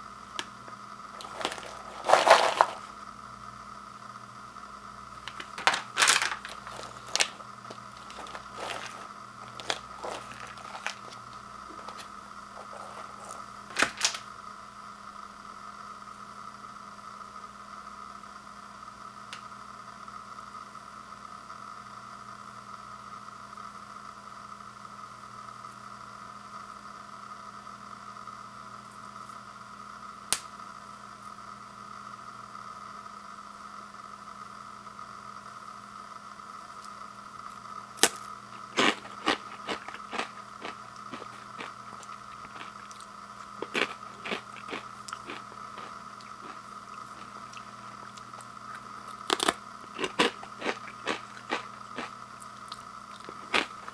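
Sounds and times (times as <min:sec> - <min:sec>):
faint steady hum: 0:00.0 - 0:53.9
snack bag crinkling: 0:01.1 - 0:03.0, 0:05.2 - 0:14.2, 0:38.0 - 0:53.9
chips clattering in plastic bowl: 0:01.2 - 0:02.9, 0:05.3 - 0:14.2, 0:38.0 - 0:41.7, 0:43.6 - 0:47.4.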